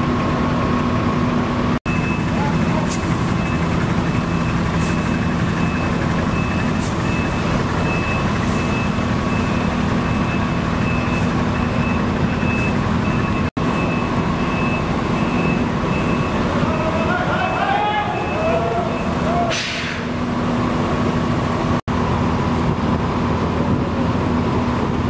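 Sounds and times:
truck diesel engine running: 0.0s - 25.0s
reversing alarm beeping: 1.9s - 19.4s
short air hisses: 19.5s - 20.1s.

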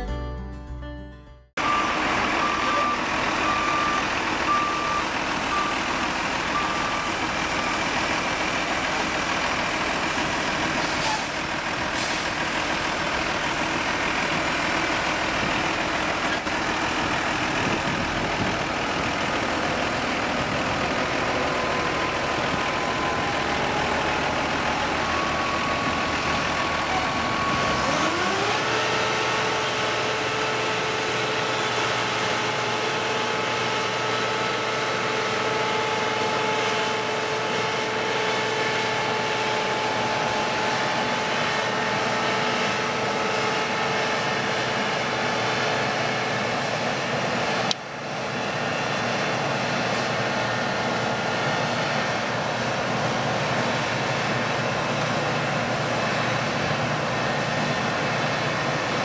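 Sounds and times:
backup alarm beeping: 1.6s - 7.4s
engine revving: 1.6s - 46.5s
diesel engines running: 1.6s - 59.0s.

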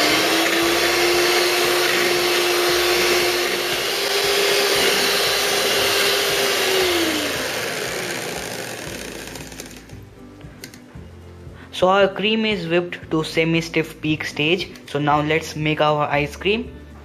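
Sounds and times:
electric hand mixer running: 0.0s - 10.2s.

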